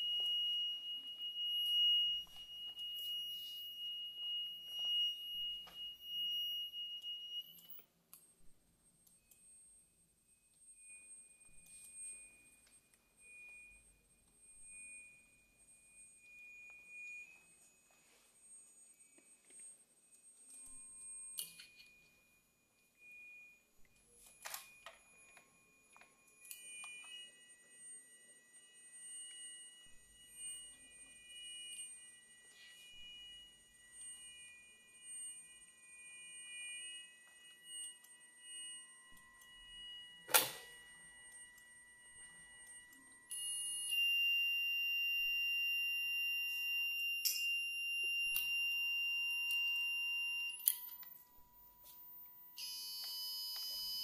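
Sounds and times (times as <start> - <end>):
high-pitched electronic tones: 0.0 - 7.8.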